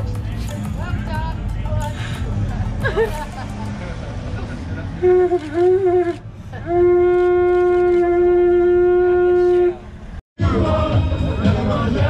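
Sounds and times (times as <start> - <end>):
horn blasts: 5.0 - 10.0.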